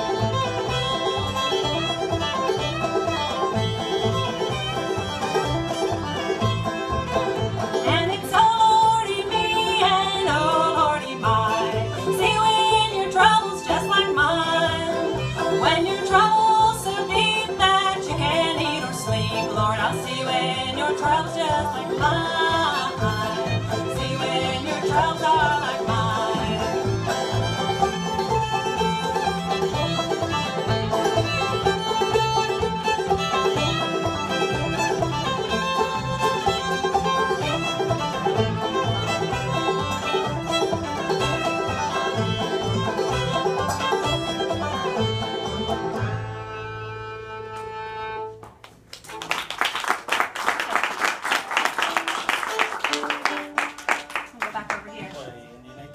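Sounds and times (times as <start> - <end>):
string band playing: 0.0 - 55.9
audience applauding: 48.4 - 55.2.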